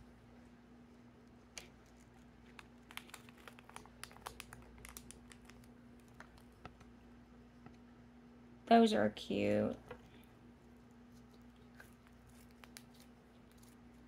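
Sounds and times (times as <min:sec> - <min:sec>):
steady low hum: 0:00.0 - 0:14.0
hands handling slime and packaging: 0:01.4 - 0:07.0, 0:11.0 - 0:14.0.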